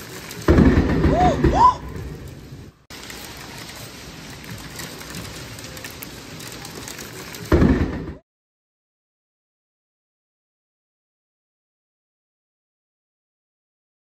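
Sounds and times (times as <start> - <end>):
steady rain: 0.0 - 8.2
thunder crack: 0.0 - 8.2.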